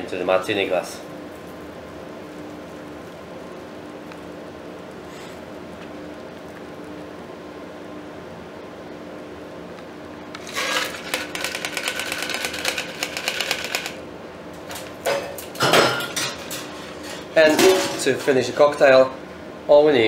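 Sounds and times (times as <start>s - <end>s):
ice rattling in cocktail shaker: 10.4s - 14.0s.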